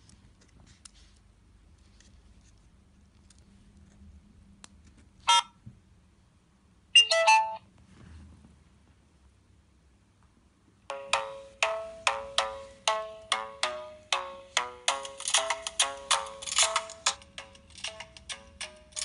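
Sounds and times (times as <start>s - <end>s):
short electronic beep: 7.0s - 7.6s.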